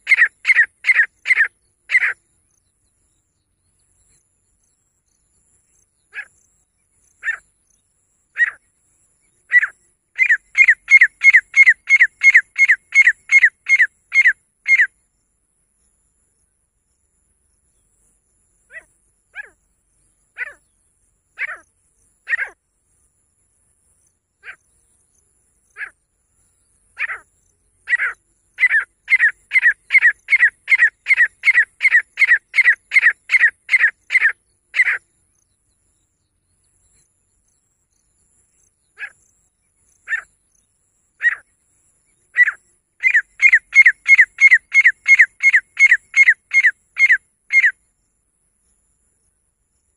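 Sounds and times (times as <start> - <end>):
francolin calling: 0.0 - 2.6, 5.7 - 15.0, 18.6 - 22.6, 25.6 - 35.4, 38.0 - 47.9.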